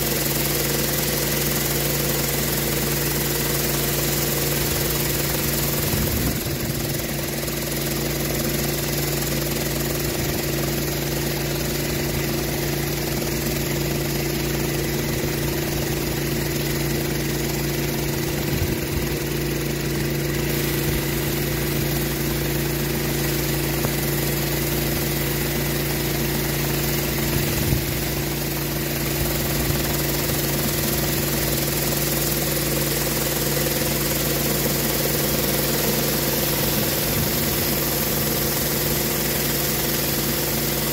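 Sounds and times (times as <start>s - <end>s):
pressure washer engine running: 0.0s - 40.9s
hiss of water jets: 20.3s - 40.9s.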